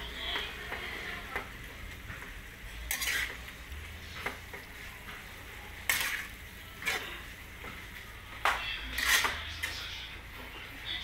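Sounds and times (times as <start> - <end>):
metal spoon scraping metal pan: 2.8 - 3.5, 5.8 - 7.3, 8.8 - 10.0.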